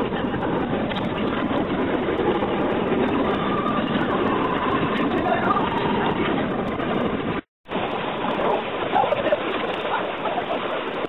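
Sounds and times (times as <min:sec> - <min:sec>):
river rapids rushing: 0:07.7 - 0:11.0.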